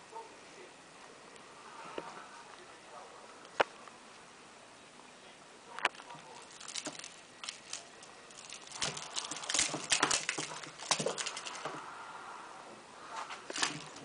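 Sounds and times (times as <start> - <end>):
kitten scrambling on tiled floor: 6.0 - 11.8, 13.5 - 14.0.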